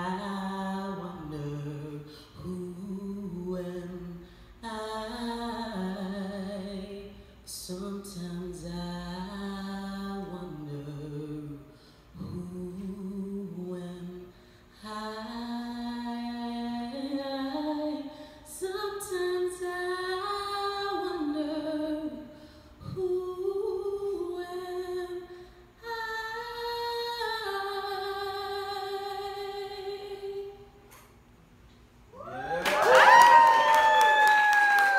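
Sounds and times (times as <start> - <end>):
woman singing unaccompanied: 0.0 - 11.6, 12.2 - 30.7
singer breathing: 2.0 - 2.4, 4.2 - 4.6, 11.6 - 12.2, 14.3 - 14.8, 22.3 - 22.8.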